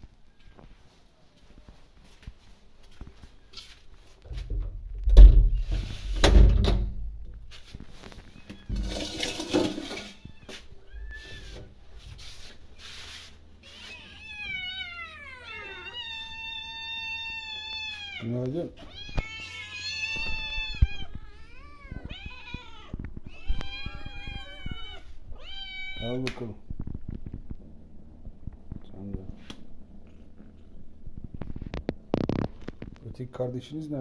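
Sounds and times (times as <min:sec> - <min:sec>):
clattering: 0:08.7 - 0:10.2
kitten meowing: 0:10.1 - 0:11.5, 0:13.6 - 0:26.3.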